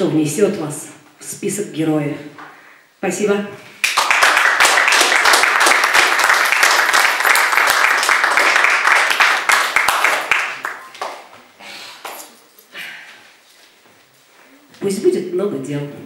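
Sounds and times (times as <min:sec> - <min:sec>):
audience applauding: 0:03.8 - 0:11.4.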